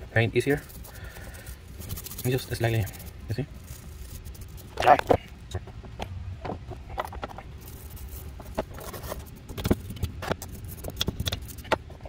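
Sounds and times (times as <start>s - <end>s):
wire brush scratching metal: 0.3s - 5.2s, 7.6s - 11.8s.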